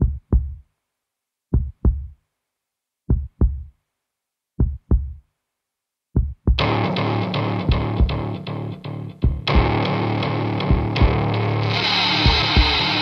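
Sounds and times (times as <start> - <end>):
heartbeat double thumps: 0.0 - 0.6, 1.5 - 2.2, 3.1 - 3.7, 4.6 - 5.2, 6.2 - 6.7, 7.7 - 8.3, 9.2 - 9.8, 10.6 - 11.3.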